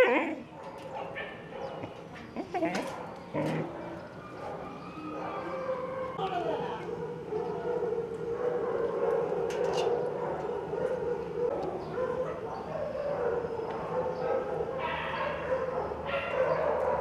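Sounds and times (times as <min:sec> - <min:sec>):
dogs whining: 0:00.0 - 0:17.0
dogs yelping: 0:00.0 - 0:17.0.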